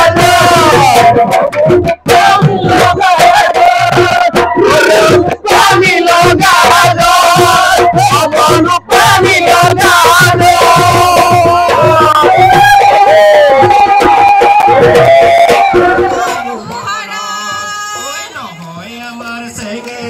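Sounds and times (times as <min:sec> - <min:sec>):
dhol drums beating: 0:00.0 - 0:20.0
group shouts and voices: 0:12.3 - 0:18.7.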